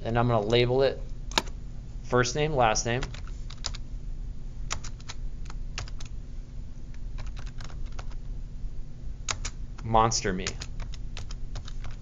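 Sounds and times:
low steady hum: 0.0 - 12.0
keyboard typing: 4.7 - 6.1, 7.2 - 8.2, 9.3 - 12.0.

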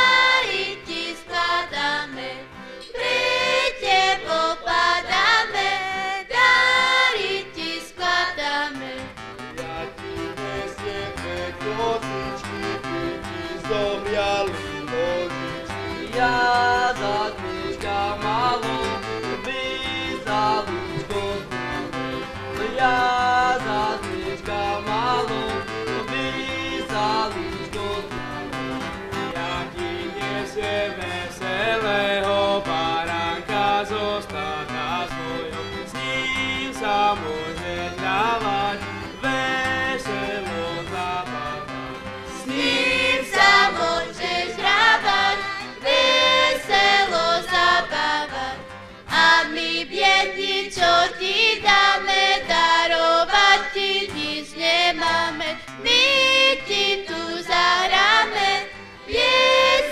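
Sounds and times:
folk band playing: 0.0 - 59.9.

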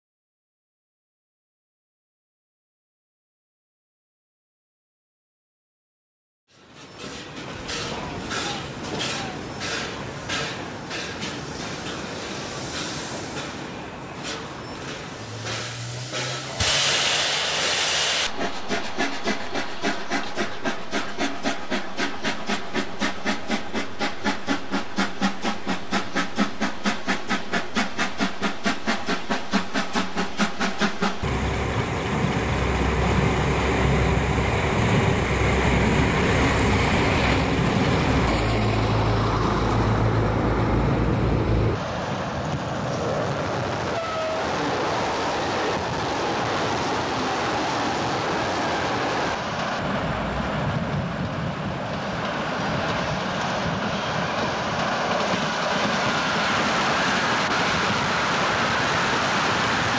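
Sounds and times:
moving train rumble: 6.6 - 59.9
steam locomotive chuffing: 6.8 - 41.8
hissing steam: 7.0 - 40.2, 52.5 - 59.9.

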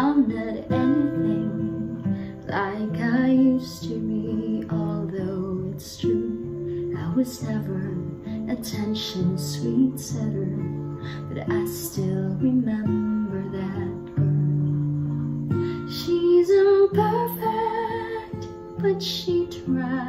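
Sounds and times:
acoustic guitar strumming chords: 0.0 - 20.0.

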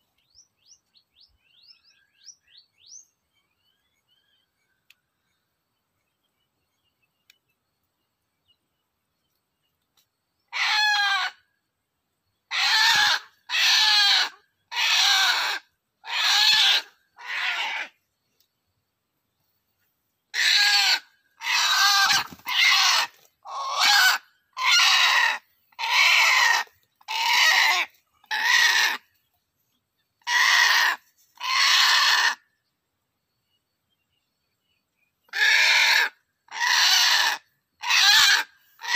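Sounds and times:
junglefowl squawking calls: 10.5 - 11.5, 12.5 - 18.0, 20.3 - 29.1, 30.2 - 32.4, 35.3 - 38.9.

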